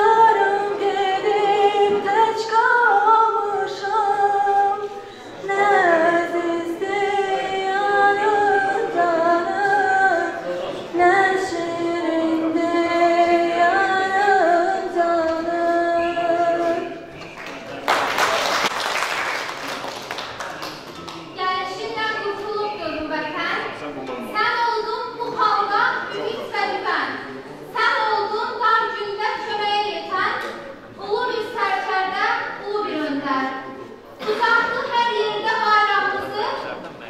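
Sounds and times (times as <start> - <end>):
woman singing into a microphone: 0.0 - 17.1.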